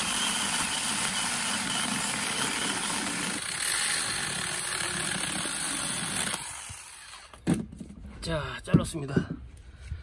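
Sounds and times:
mini chainsaw cutting log: 0.0s - 7.7s.

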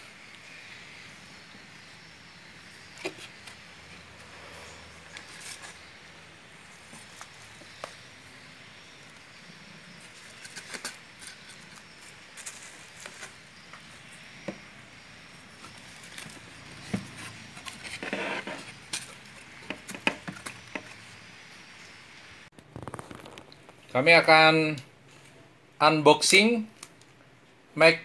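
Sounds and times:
scraping rustle: 3.0s - 8.0s, 15.5s - 21.2s.

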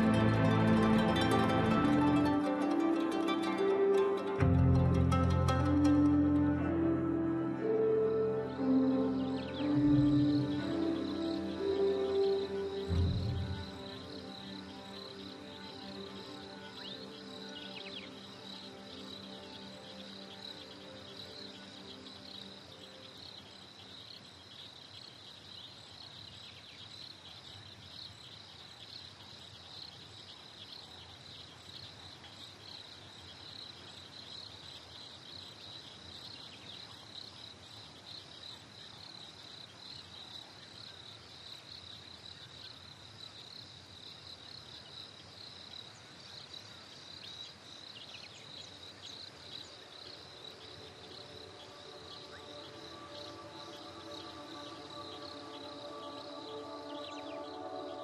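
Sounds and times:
crickets chirping: 0.0s - 58.0s.

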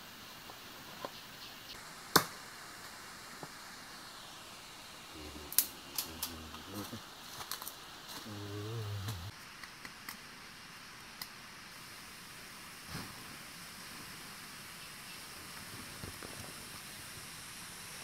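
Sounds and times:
low voice murmuring: 5.1s - 7.0s, 8.1s - 9.3s.

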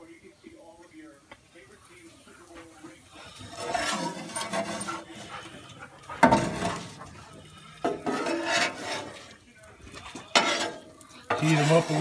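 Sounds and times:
spatula scraping on griddle: 2.3s - 9.4s, 10.0s - 12.0s.

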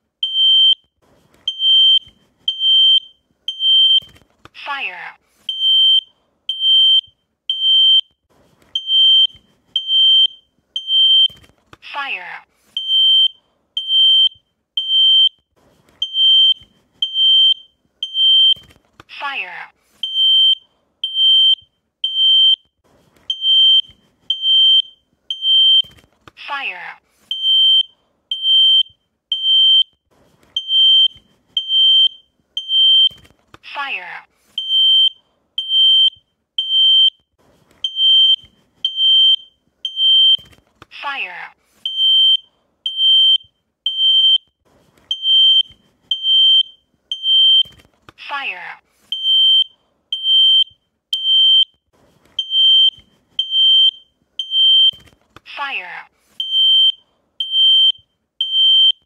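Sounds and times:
smoke alarm beeping: 0.2s - 0.9s, 1.5s - 4.2s, 5.5s - 11.5s, 12.8s - 15.4s, 16.0s - 18.8s, 20.0s - 22.7s, 23.3s - 26.0s, 27.3s - 30.0s, 30.6s - 33.3s, 34.6s - 37.2s, 37.8s - 40.6s, 41.8s - 44.5s, 45.1s - 47.8s, 49.1s - 51.8s, 52.4s - 55.1s, 56.4s - 59.0s.

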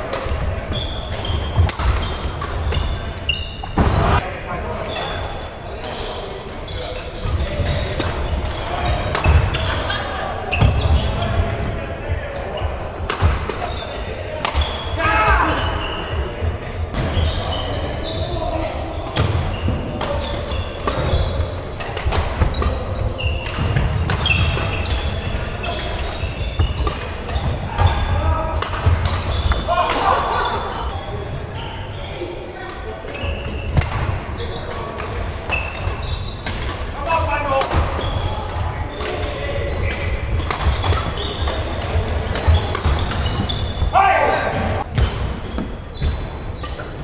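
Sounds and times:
rackets striking shuttlecock: 0.0s - 4.2s, 5.0s - 9.9s, 12.3s - 13.8s, 14.4s - 14.8s, 20.0s - 30.1s, 37.5s - 47.0s
court shoes squeaking: 0.0s - 47.0s.

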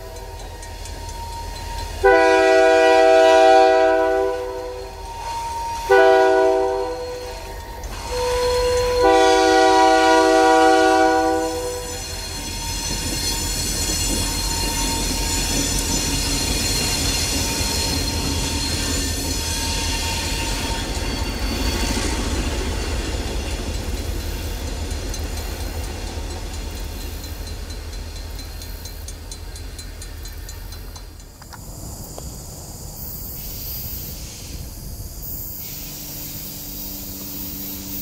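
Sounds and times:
locomotive horn chord: 2.0s - 7.4s, 8.0s - 12.0s.

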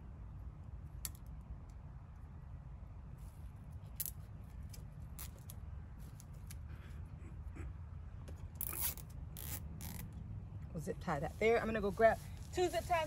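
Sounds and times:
zip ties clicking: 8.5s - 10.2s.

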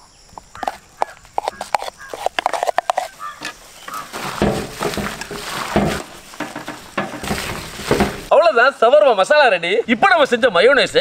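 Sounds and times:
wet squelching of hands mixing: 0.6s - 8.3s.

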